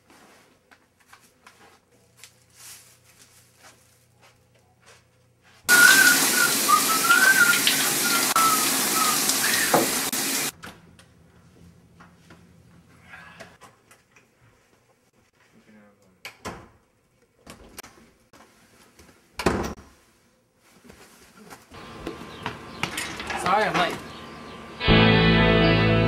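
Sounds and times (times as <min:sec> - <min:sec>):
person whistling: 0:05.7 - 0:09.9
shower spray hissing: 0:05.7 - 0:10.5.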